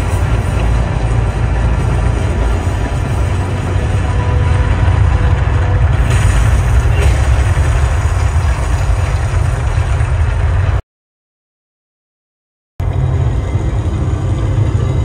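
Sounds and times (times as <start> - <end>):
rumbling ambient electronic music: 0.0 - 10.8, 12.8 - 15.0.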